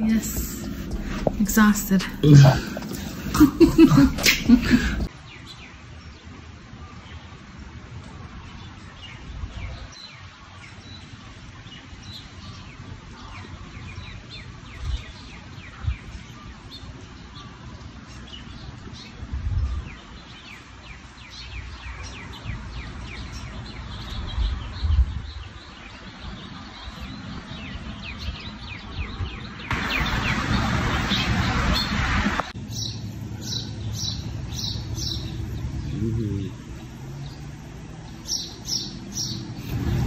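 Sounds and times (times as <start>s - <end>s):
small birds chirping: 0.0s - 40.0s
wind rumble on microphone: 7.6s - 10.2s, 13.9s - 17.0s, 18.4s - 20.6s, 21.5s - 40.0s.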